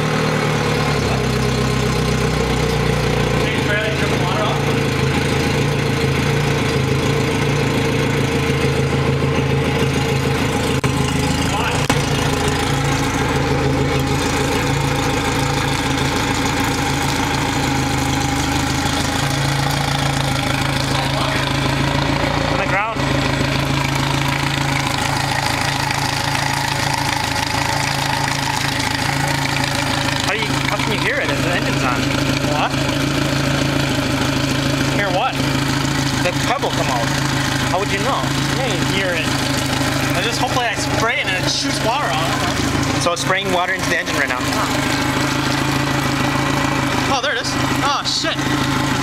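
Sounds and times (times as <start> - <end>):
outboard engine idling: 0.0 - 49.0
water splashing: 9.8 - 49.0.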